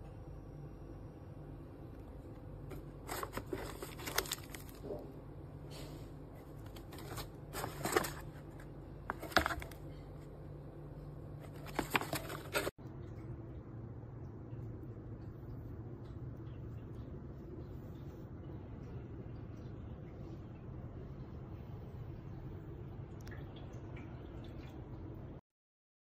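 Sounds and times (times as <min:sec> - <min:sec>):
steady low hum: 0:00.0 - 0:25.4
paper pouches crinkling: 0:02.7 - 0:05.0, 0:06.5 - 0:10.0, 0:11.4 - 0:12.7.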